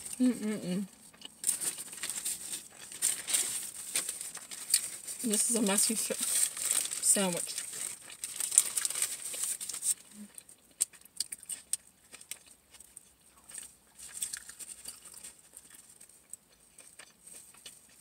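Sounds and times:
paper wrapper crinkling: 1.1s - 12.5s.

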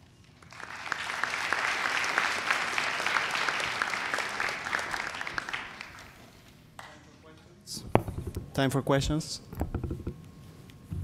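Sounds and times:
audience applauding: 0.4s - 6.4s.

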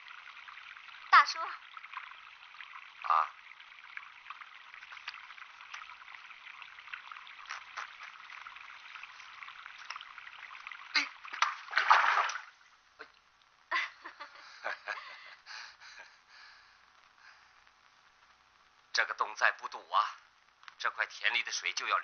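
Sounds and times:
water splashes: 0.0s - 13.0s
water trickling: 0.0s - 16.1s, 16.8s - 22.0s.

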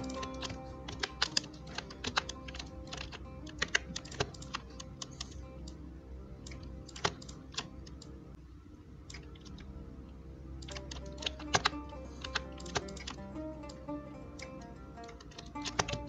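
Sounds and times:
keyboard and mouse clicking: 0.0s - 5.8s, 6.4s - 8.2s, 9.1s - 9.7s, 10.6s - 13.8s, 14.4s - 16.0s
soft background music: 0.0s - 16.0s.

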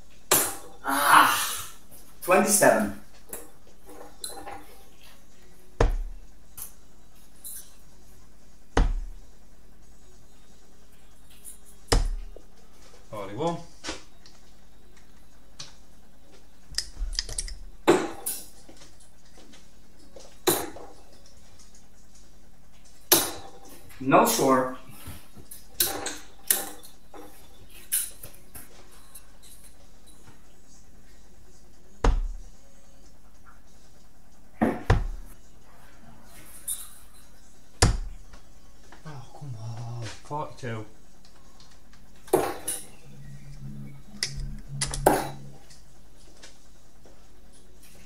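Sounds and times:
darts striking dartboard: 5.8s - 6.2s, 8.8s - 9.1s, 11.9s - 12.3s, 37.8s - 38.1s.

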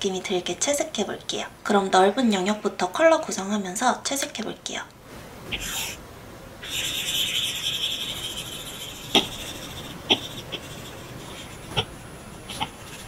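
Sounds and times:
pencil tip scratching on screen: 6.6s - 13.0s.

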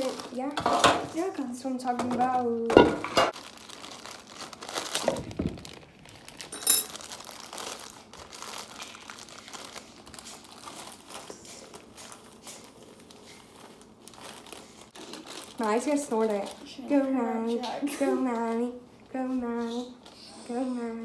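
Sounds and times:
plastic bag crinkling: 0.0s - 1.3s, 3.3s - 17.1s.

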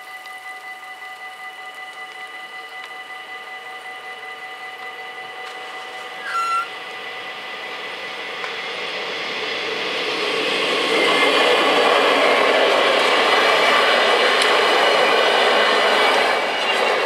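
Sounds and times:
train rushing: 1.4s - 17.0s
high beep: 6.1s - 6.7s.

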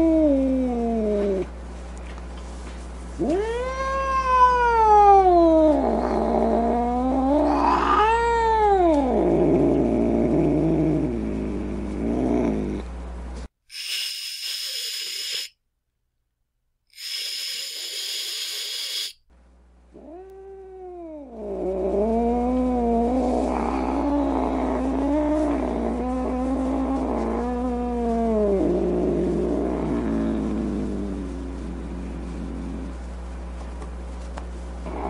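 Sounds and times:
cat growling: 0.0s - 1.5s, 3.2s - 12.8s, 19.9s - 33.0s
cat yowling: 3.2s - 6.1s, 7.0s - 9.2s.

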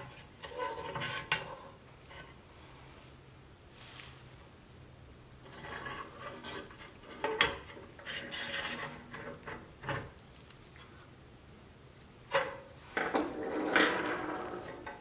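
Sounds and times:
rubber wheel scraping on steel axle: 0.0s - 2.4s, 5.5s - 10.1s.

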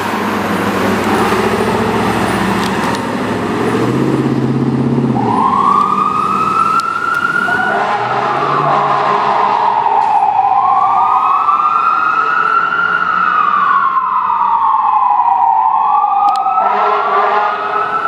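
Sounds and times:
fire engine siren wailing: 0.0s - 18.0s
second siren wailing: 5.1s - 18.0s.

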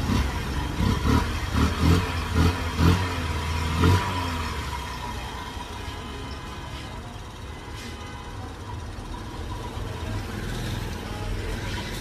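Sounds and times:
small motorcycle engine revving: 0.0s - 5.2s.

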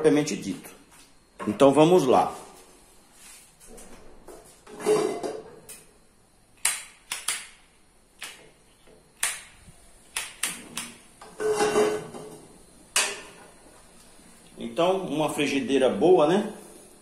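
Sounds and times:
frying pan scraping on grate: 4.6s - 5.4s, 11.2s - 12.4s.

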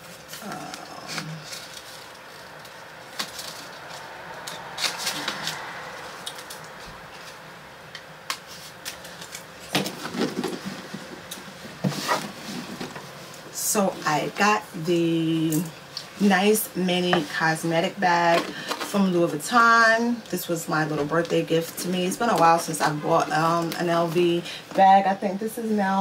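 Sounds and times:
paper and packaging rustling: 0.0s - 7.4s, 8.3s - 13.4s.

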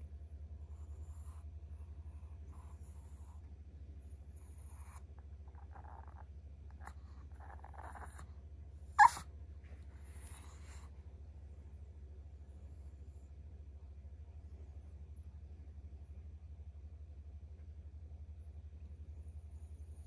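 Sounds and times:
steady low hum: 0.0s - 20.0s
dog yipping: 7.4s - 8.2s, 9.0s - 9.2s.

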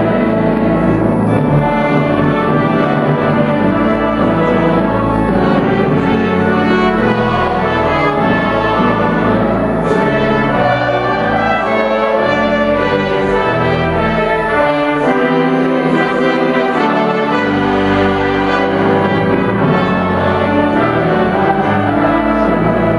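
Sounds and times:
pipe organ playing a hymn: 0.0s - 22.9s
trumpets and trombones: 0.0s - 22.9s.

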